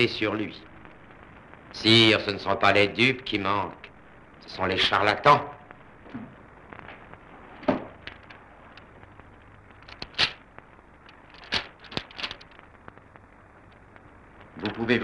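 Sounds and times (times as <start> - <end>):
film soundtrack hiss: 0.0 - 15.0
paper crackling: 8.0 - 10.4, 11.0 - 13.0.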